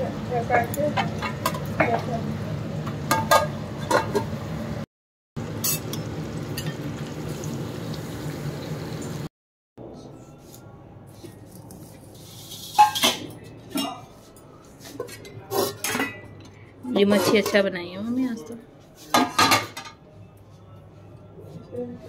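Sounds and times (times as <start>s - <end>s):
utensils clinking on steel dishes: 3.1s - 4.3s, 5.6s - 6.8s, 11.6s - 20.0s
fish sizzling in hot oil: 5.4s - 9.3s.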